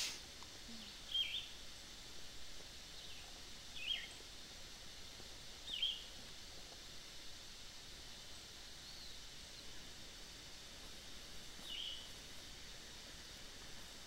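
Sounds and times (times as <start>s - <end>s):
steady background hiss: 0.0s - 14.0s
bird chirping: 0.8s - 1.6s, 3.0s - 4.2s, 5.6s - 6.1s, 11.6s - 12.2s.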